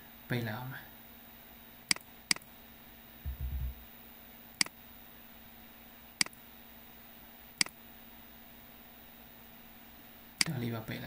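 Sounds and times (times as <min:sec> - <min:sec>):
faint steady hum: 0:00.0 - 0:11.0
computer mouse clicks: 0:01.9 - 0:02.5, 0:06.2 - 0:06.4
short low thump: 0:03.3 - 0:03.8.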